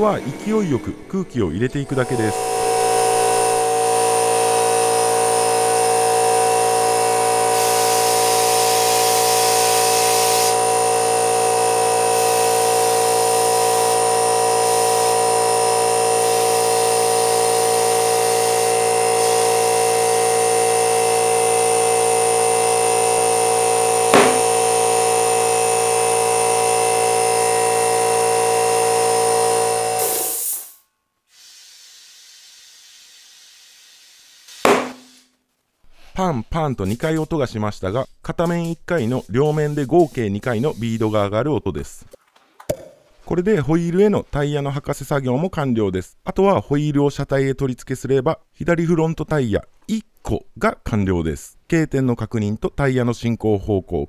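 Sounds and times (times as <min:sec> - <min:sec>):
air compressor humming: 0:00.0 - 0:30.6, 0:34.7 - 0:35.2.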